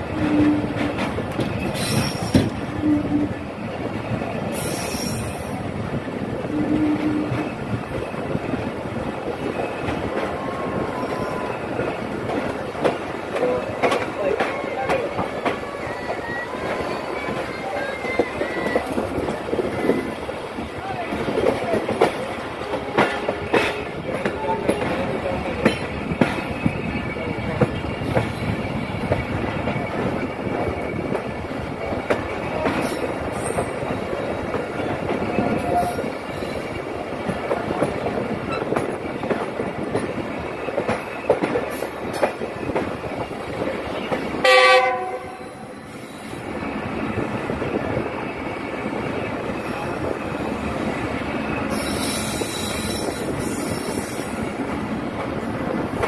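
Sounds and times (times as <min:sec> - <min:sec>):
train rumble: 0:00.0 - 0:56.0
train horn blast: 0:02.7 - 0:03.4, 0:06.4 - 0:07.5, 0:44.4 - 0:45.7.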